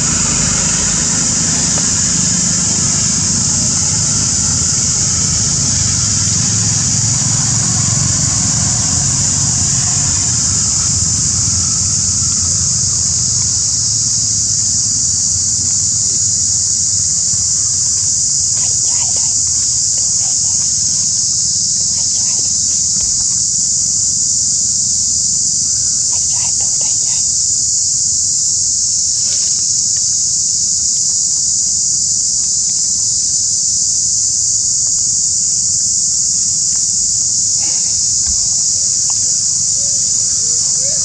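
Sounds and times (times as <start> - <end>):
low rumble: 0.0 - 16.2
insect chorus drone: 0.0 - 41.0.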